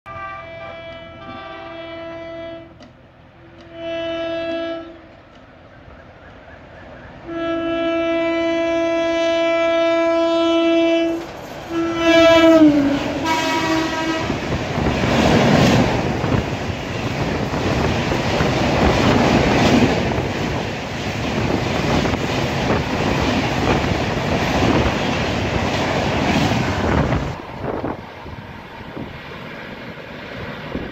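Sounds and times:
locomotive horn blasts: 0.1 - 5.2, 7.2 - 14.5
train coaches roaring past: 0.1 - 30.9.

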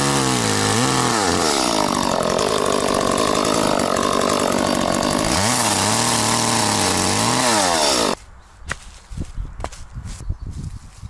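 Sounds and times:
chainsaw cutting and idling: 0.0 - 8.2.

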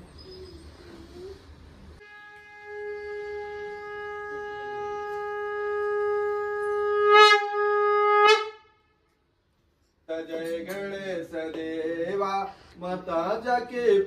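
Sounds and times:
conch shell blown: 2.0 - 9.1.

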